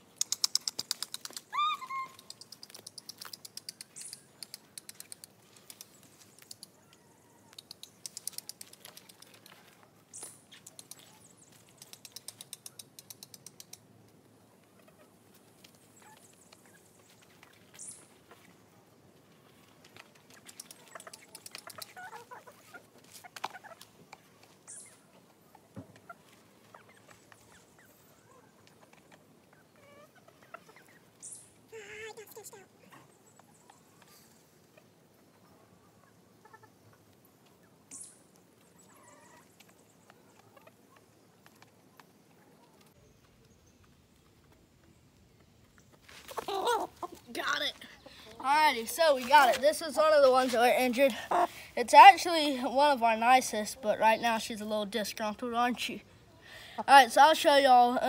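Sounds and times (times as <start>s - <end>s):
quick high ticking: 0.0s - 6.7s
chickens clucking: 0.0s - 51.8s.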